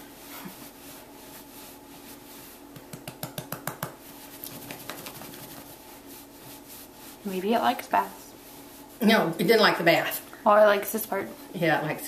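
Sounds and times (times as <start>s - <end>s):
towel rubbing wet cat: 4.0s - 7.7s.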